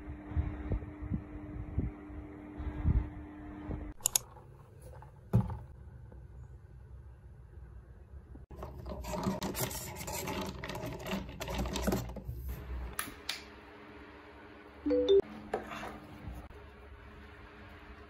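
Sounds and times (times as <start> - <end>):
sharp clicks: 4.0 - 4.3
straw scraping in plastic cup: 8.5 - 12.3.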